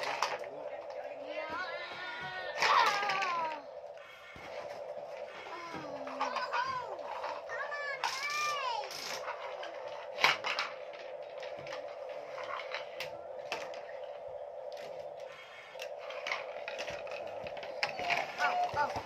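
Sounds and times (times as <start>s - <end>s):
steady hum: 0.0s - 19.0s
toys and marbles clicking on wood: 0.0s - 19.0s.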